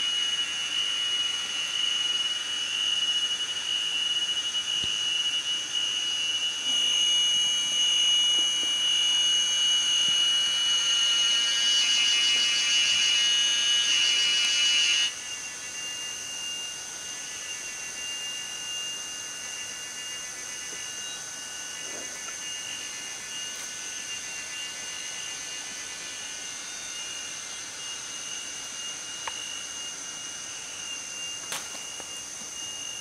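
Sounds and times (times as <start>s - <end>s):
forest insects droning: 0.0s - 33.0s
rasping buzz: 5.8s - 15.2s.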